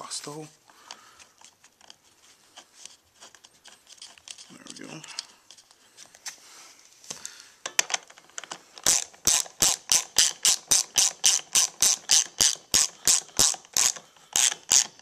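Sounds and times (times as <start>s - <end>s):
ratchet wrench clicking: 8.8s - 15.0s.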